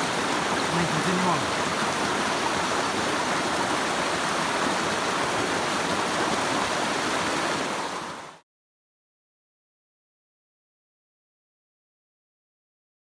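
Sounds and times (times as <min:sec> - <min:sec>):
creek water rushing over rocks: 0:00.0 - 0:08.4.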